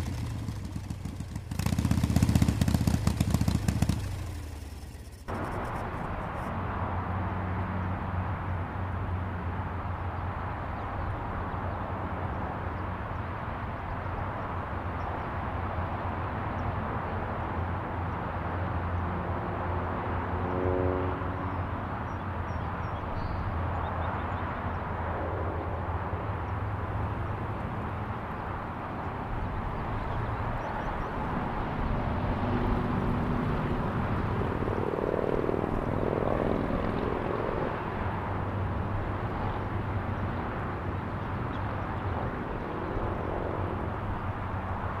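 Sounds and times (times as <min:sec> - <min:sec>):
motorcycle engine humming: 0:00.0 - 0:06.5
wind and road noise: 0:00.0 - 0:45.0.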